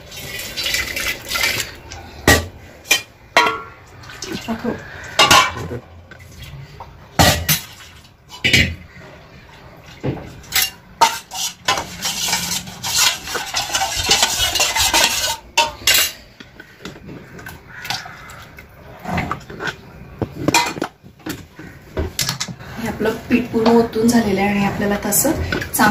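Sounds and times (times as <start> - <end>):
steel vessels knocking and clinking: 0.0 - 25.9
scraping steel bowl: 10.4 - 17.4.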